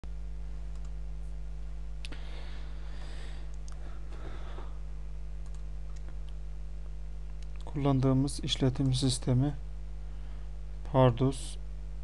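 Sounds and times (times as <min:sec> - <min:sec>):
steady low hum: 0:00.0 - 0:12.0
computer mouse clicks: 0:00.7 - 0:01.0, 0:05.4 - 0:06.4.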